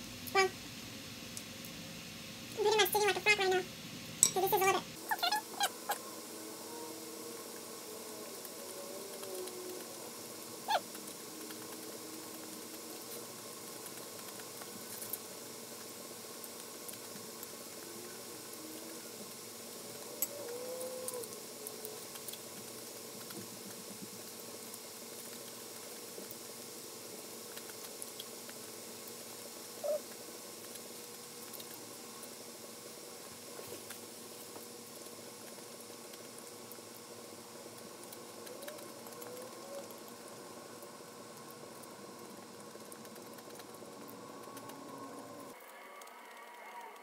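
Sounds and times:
faint steady hum: 0.0s - 47.0s.

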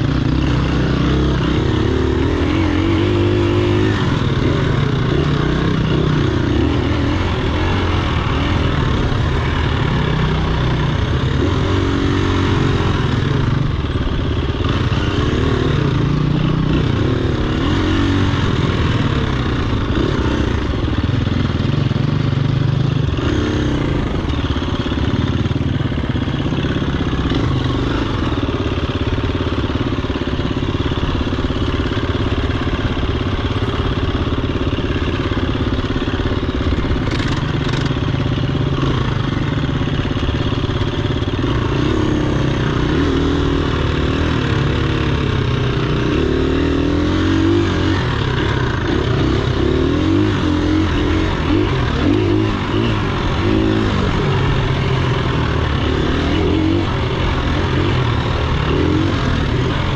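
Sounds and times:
dirt bike engine revving: 0.0s - 59.9s.

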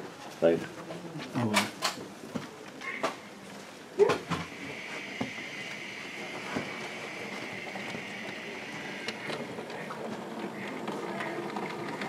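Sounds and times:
model train motor whine: 4.4s - 12.0s.

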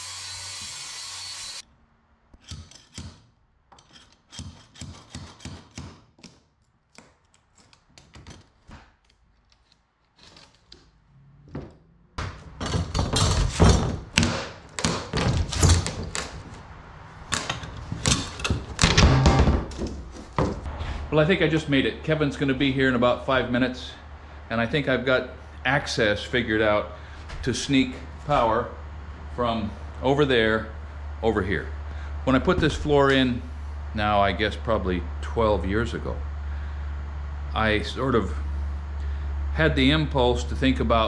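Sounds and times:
circular saw cutting plywood: 0.0s - 1.6s
pry bar thuds and scrapes: 11.6s - 16.6s.

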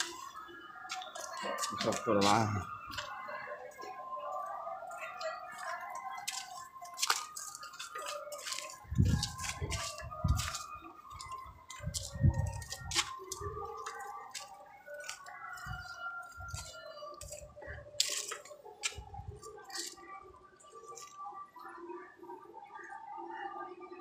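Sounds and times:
footsteps on brick rubble: 0.0s - 3.3s, 5.2s - 20.0s.

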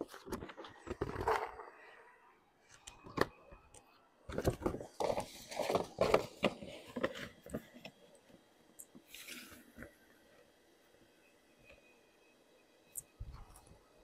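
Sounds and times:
stiff paper crackling and rustling: 4.3s - 7.7s.

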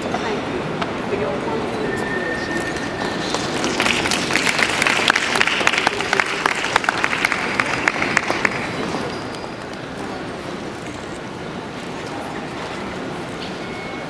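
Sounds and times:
group of people applauding: 3.0s - 10.0s.

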